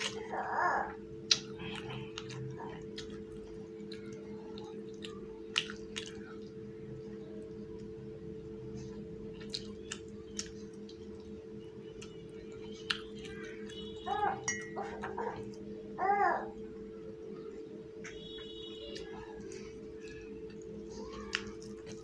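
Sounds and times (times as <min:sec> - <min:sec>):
steady low hum: 0:00.0 - 0:22.0
wet chewing and lip-smacking: 0:01.2 - 0:08.0, 0:08.7 - 0:14.0, 0:18.0 - 0:22.0.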